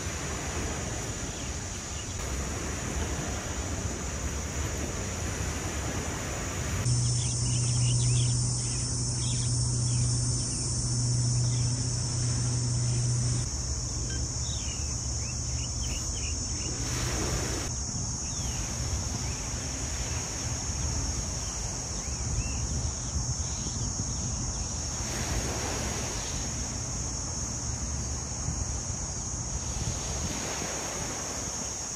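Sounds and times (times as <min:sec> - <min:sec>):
insects droning: 0:00.0 - 0:31.9
low hum: 0:06.9 - 0:16.9.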